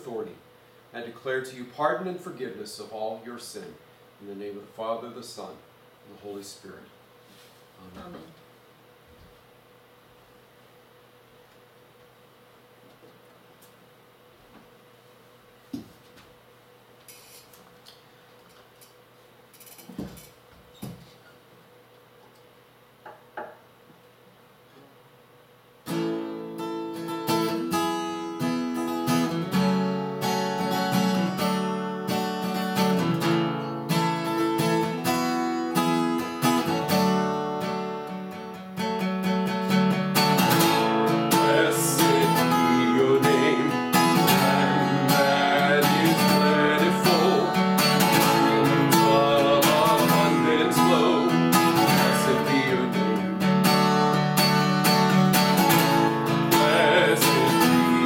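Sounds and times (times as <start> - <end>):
acoustic guitar music: 25.8 - 58.0.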